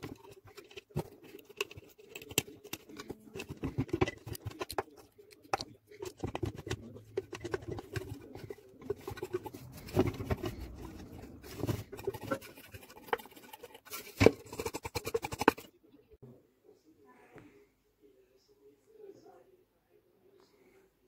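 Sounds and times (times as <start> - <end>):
hands handling metal blender base: 0.0 - 15.6.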